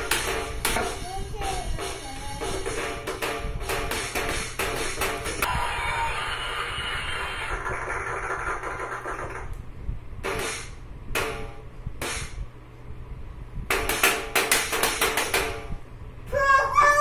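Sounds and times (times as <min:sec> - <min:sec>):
music: 0:00.0 - 0:05.5.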